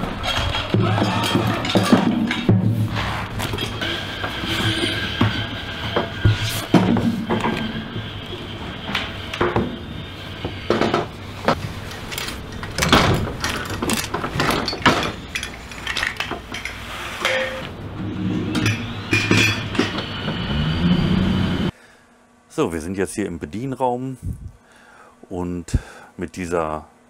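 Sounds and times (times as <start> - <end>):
metallic clinks and clanks: 11.9 - 17.7.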